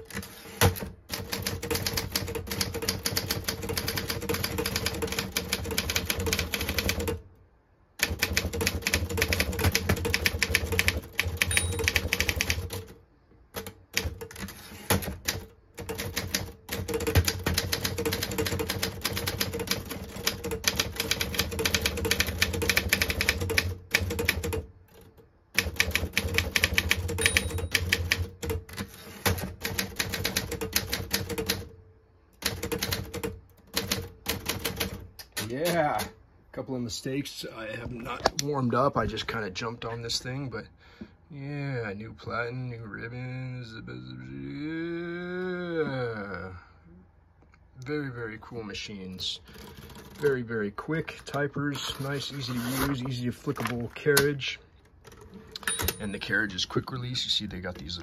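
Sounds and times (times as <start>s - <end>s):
typewriter typing fast: 0.0s - 7.2s, 8.0s - 13.0s, 13.6s - 31.7s, 32.4s - 35.1s, 49.5s - 50.5s.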